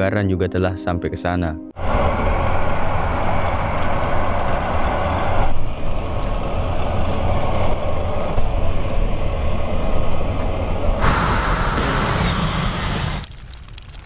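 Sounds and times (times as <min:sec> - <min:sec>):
thin high squeal: 0:05.4 - 0:08.4
noisy rush: 0:08.4 - 0:13.3.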